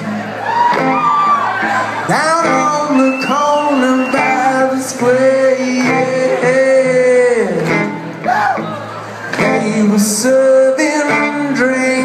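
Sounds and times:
acoustic guitar: 0:00.0 - 0:12.0
man singing: 0:02.0 - 0:08.6, 0:09.4 - 0:12.0.

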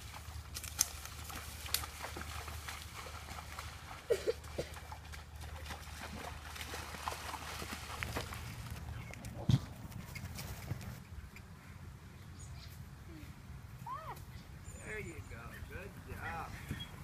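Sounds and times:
hooves splashing in water: 0:00.0 - 0:11.0
hooves stepping in mud: 0:00.0 - 0:11.9.

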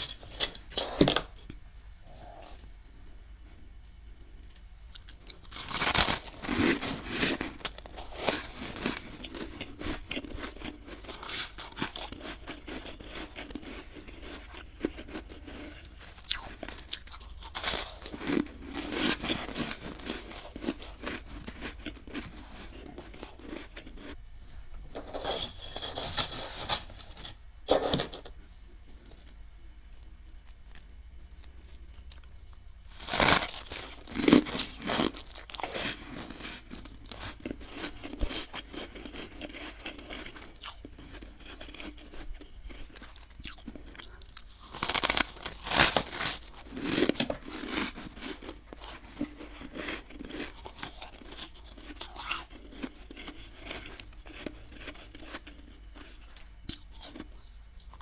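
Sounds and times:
frost crunching: 0:04.9 - 0:24.2, 0:24.9 - 0:28.1, 0:32.9 - 0:57.3
spoon scraping frost: 0:24.9 - 0:28.4.

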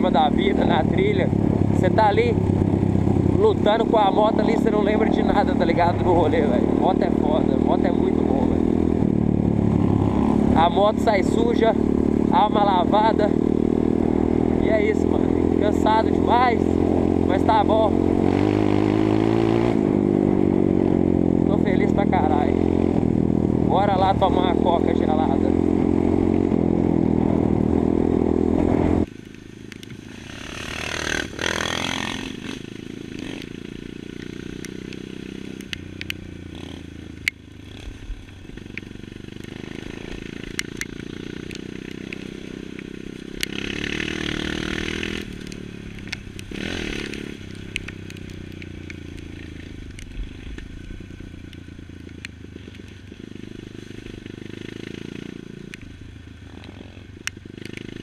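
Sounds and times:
dirt bike engine revving: 0:00.0 - 0:51.5, 0:52.5 - 0:58.0
bike clicks and rattles: 0:57.2 - 0:58.0.

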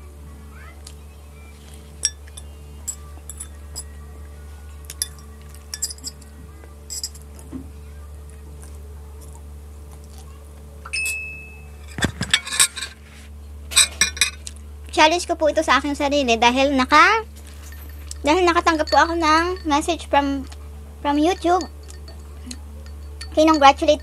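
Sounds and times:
steady low hum: 0:00.0 - 0:24.0
fork and spoon clinking on plate: 0:04.9 - 0:06.3, 0:11.8 - 0:13.0, 0:13.7 - 0:14.5.

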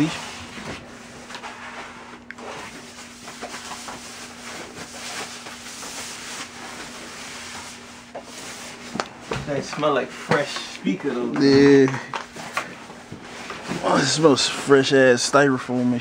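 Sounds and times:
styrofoam and plastic bag rustling: 0:00.0 - 0:08.9.

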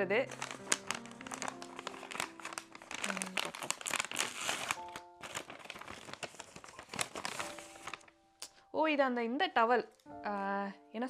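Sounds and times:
soft background music: 0:00.0 - 0:11.0
packaging crinkling and rustling: 0:00.2 - 0:08.2.

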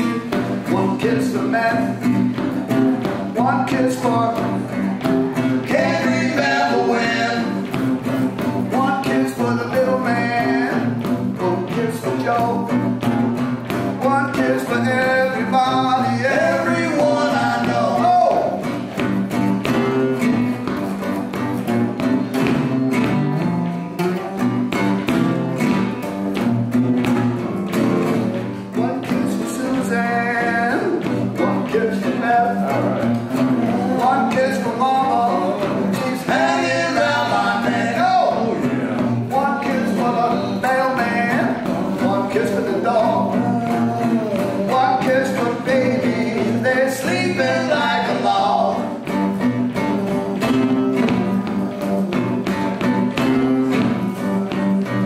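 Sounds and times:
men singing: 0:00.0 - 0:07.8, 0:08.4 - 0:13.2, 0:14.0 - 0:18.8, 0:28.7 - 0:49.1, 0:49.7 - 0:53.5
acoustic guitars strummed: 0:00.0 - 0:55.0.

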